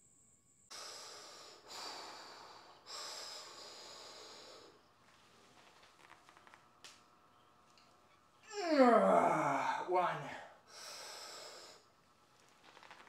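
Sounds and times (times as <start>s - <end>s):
man breathing hard: 0.7s - 4.8s, 10.7s - 11.9s.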